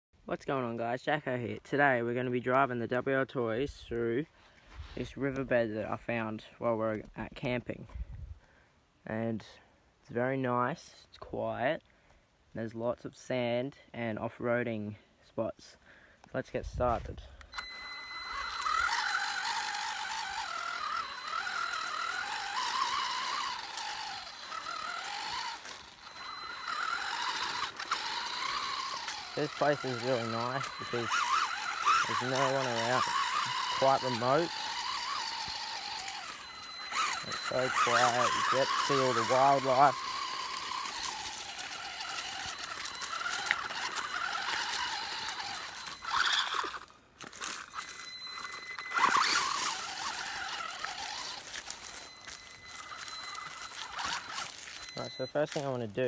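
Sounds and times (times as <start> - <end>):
toy car electric motor whining: 17.4 - 56.0
tyres crunching over leaves and gravel: 18.3 - 56.0.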